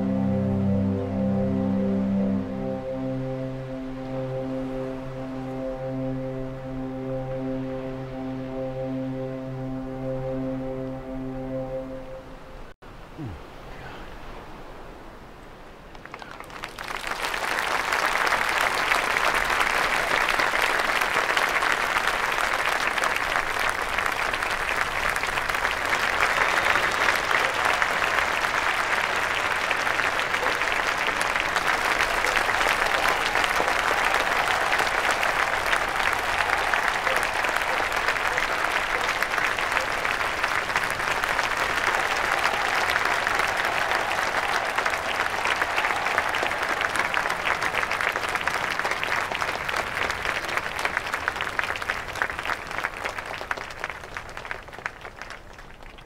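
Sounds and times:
large audience applauding: 16.0s - 56.0s.

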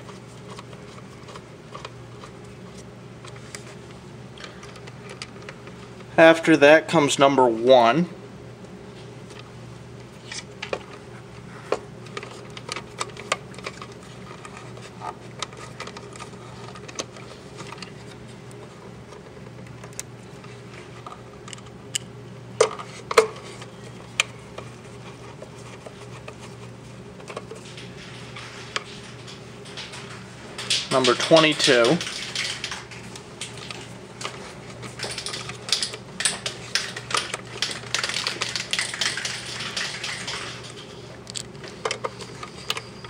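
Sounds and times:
steady low hum: 0.0s - 43.0s
wire connectors clicking and rattling: 12.0s - 18.1s, 27.2s - 43.0s.

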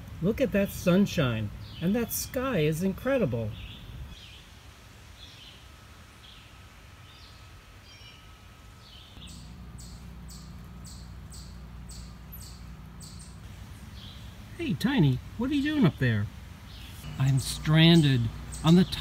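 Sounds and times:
low steady hum: 0.0s - 19.0s
faint bird chirps: 5.2s - 14.4s.

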